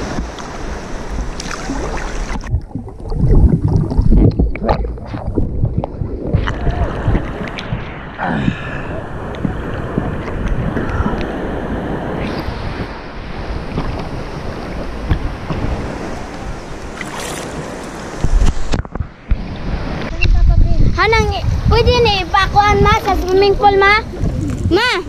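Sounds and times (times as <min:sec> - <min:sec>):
underwater thumps and gurgles: 0:00.0 - 0:11.4, 0:13.6 - 0:16.0, 0:18.2 - 0:20.1
sea water sloshing and splashing: 0:00.0 - 0:20.0
wind buffeting microphone: 0:00.0 - 0:25.0.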